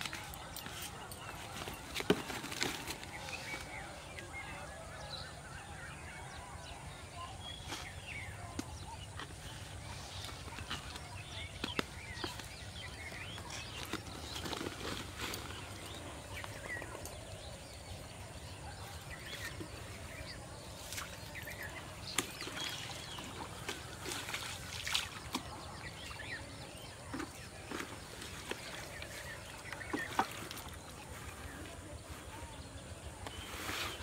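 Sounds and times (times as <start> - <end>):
water sloshing and trickling: 9.2 - 32.4.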